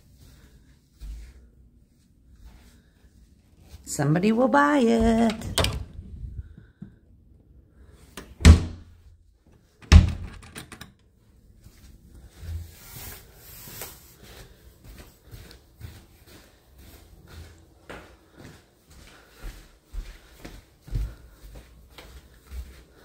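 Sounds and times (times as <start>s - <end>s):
door thumps: 8.4s - 8.9s.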